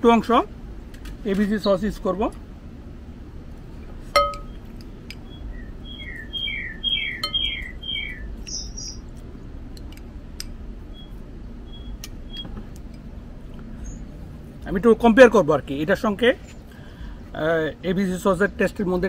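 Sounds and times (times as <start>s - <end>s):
low background hum: 0.0s - 19.0s
sharp clink with short ring: 4.2s - 4.6s
songbird chirping: 4.2s - 9.1s, 10.8s - 14.3s.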